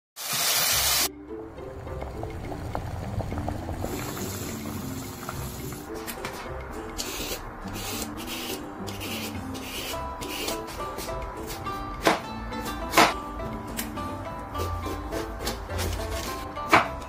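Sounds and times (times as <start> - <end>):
background music: 0.5 - 17.0
peeler scraping gourd skin: 7.0 - 13.2, 14.6 - 16.8.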